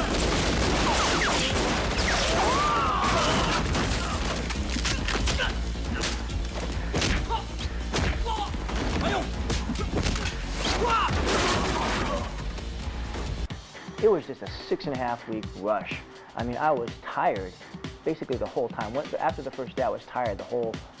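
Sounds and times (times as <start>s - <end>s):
crash and hit effects: 0.0s - 6.1s
wood breaking: 0.0s - 7.3s, 7.9s - 12.3s
background music: 0.0s - 21.0s.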